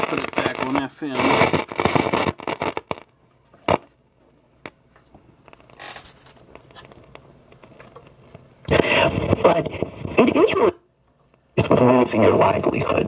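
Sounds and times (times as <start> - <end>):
soft clicks and crackles: 0.0 - 9.4.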